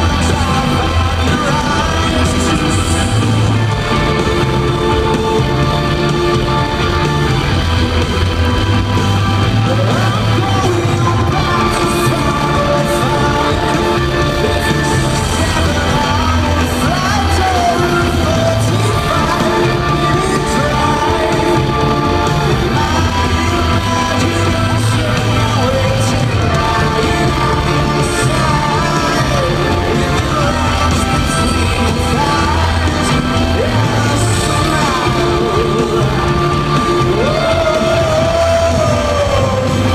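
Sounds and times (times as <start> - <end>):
lead vocal singing: 0.0 - 39.9
rock band playing live: 0.0 - 39.9.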